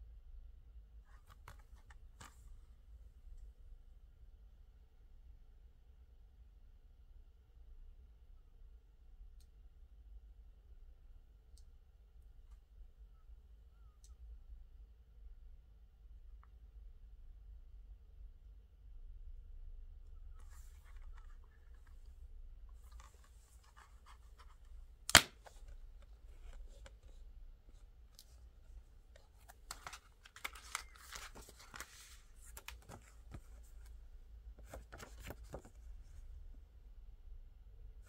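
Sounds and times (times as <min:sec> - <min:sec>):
paper insert rustling: 0:20.4 - 0:22.0, 0:22.7 - 0:33.9, 0:34.6 - 0:35.9
plastic case snapping open: 0:25.1 - 0:25.8.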